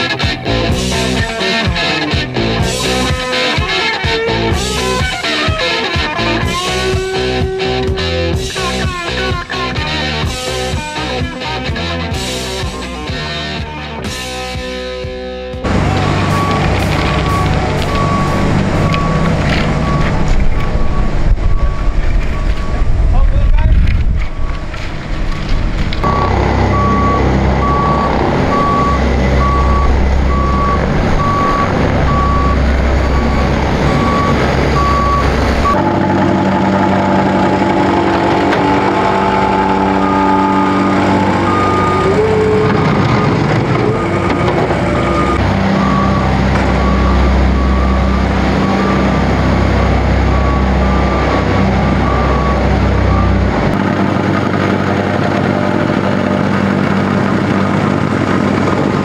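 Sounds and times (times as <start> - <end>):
heavy diesel engines running: 0.0 - 59.0
reversing alarm beeping: 12.4 - 13.2, 15.6 - 23.5, 24.1 - 24.9, 26.0 - 53.7.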